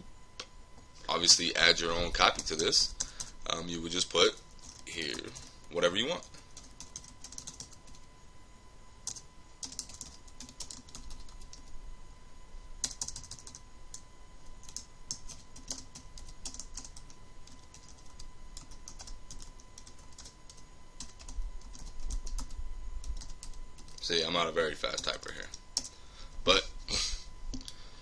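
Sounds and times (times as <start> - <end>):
computer keyboard typing: 2.2 - 3.4, 4.4 - 5.5, 6.1 - 8.0, 9.0 - 11.7, 12.8 - 14.0, 14.6 - 24.0, 24.9 - 25.9, 27.5 - 27.8.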